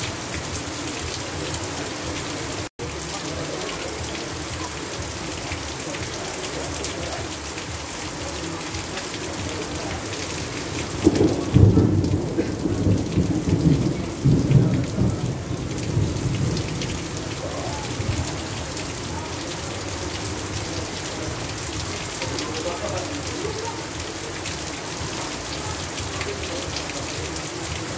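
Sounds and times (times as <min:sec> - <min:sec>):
heavy rain pouring: 0:00.0 - 0:27.9
low rumble of thunder: 0:10.8 - 0:18.6.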